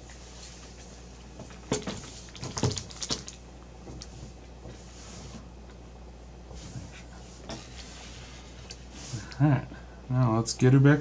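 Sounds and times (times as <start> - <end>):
plastic bag rustling: 1.8 - 3.4.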